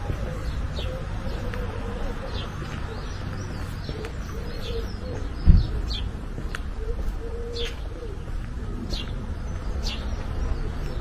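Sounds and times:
birds chirping: 0.0s - 11.0s
low steady bird call: 0.0s - 11.0s
low thump: 5.4s - 5.8s.

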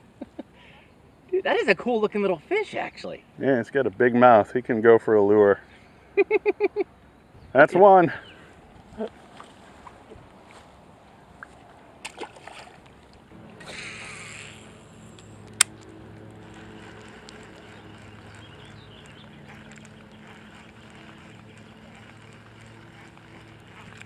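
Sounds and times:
motorboat engine droning: 12.8s - 24.0s
sharp click: 15.1s - 15.9s.

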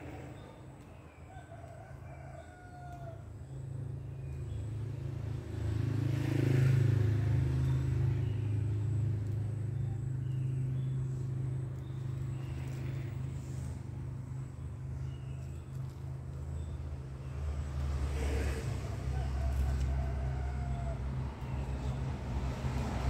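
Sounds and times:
vehicle engine passing by: 0.0s - 0.8s, 3.5s - 23.0s.

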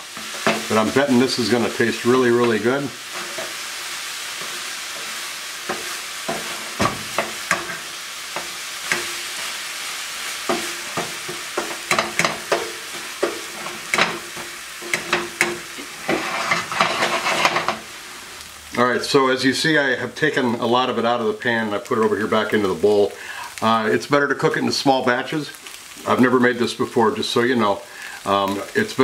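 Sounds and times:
tofu sizzling in oil: 0.0s - 29.0s
spatula scraping and tapping pan: 0.1s - 9.6s, 10.2s - 17.9s.

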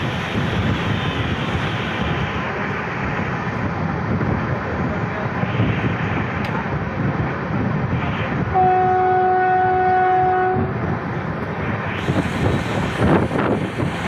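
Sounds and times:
train rolling and wind noise: 0.0s - 14.0s
locomotive horn: 8.5s - 10.8s.

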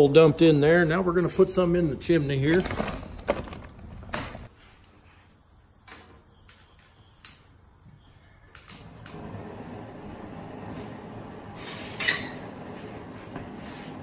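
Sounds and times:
gas hissing from valve: 11.4s - 14.0s.

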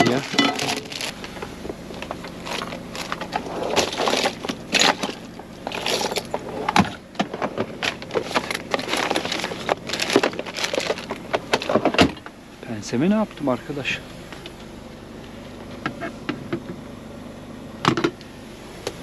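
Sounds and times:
packets and bags rustling: 0.0s - 11.8s.

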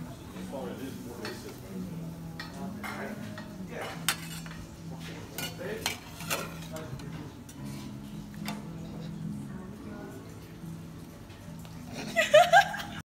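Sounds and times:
metal skimmer scraping pots: 5.3s - 7.1s.

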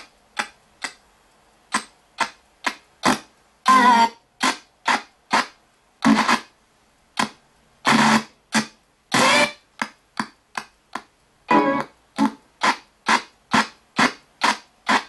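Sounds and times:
static blips: 1.7s - 6.5s, 7.2s - 9.6s, 11.5s - 15.0s.

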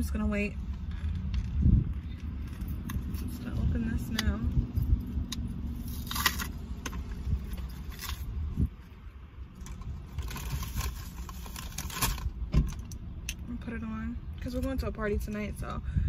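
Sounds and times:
packaging crinkling and rustling: 9.6s - 12.8s.

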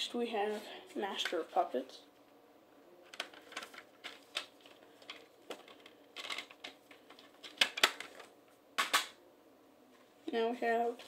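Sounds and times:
plastic case clicks and clacks: 3.1s - 9.1s
sharp plastic snaps: 5.5s - 9.2s.

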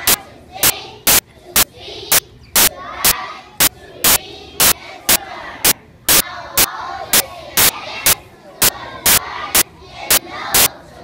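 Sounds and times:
children's voices: 0.0s - 11.0s
bursts of digital static: 2.6s - 2.8s.

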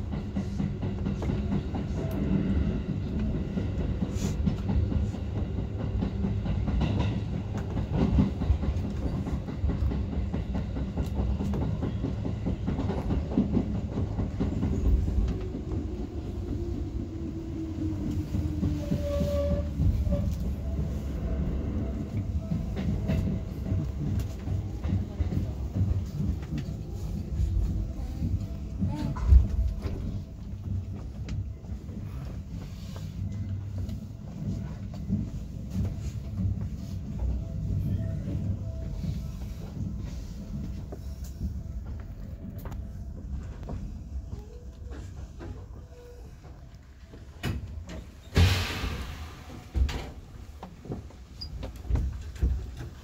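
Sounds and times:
train wheels on rails: 0.0s - 53.0s.

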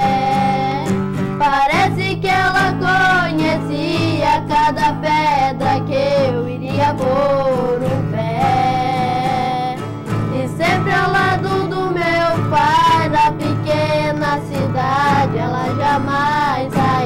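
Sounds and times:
boys singing: 0.0s - 17.0s
strummed acoustic guitars: 0.0s - 17.0s.

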